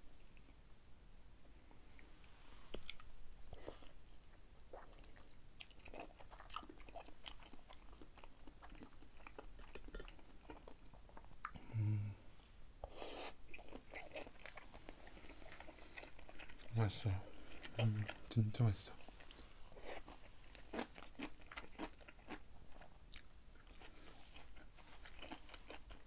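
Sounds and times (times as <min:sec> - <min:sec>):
close chewing: 0:04.6 - 0:11.6, 0:13.5 - 0:26.0
person humming: 0:11.6 - 0:12.2.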